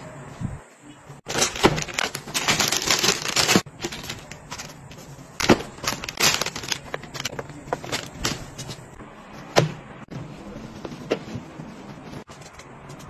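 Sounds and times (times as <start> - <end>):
plastic bag crinkling: 1.3 - 8.6.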